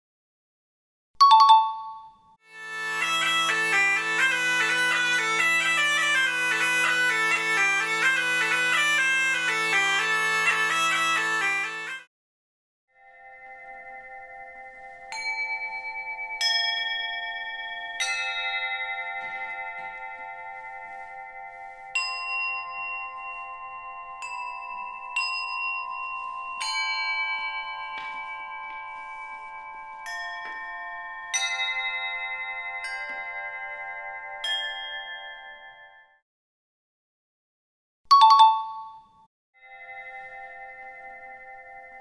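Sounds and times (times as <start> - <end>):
carillon bells playing melody: 1.2 - 2.2, 13.0 - 36.2, 38.1 - 39.0.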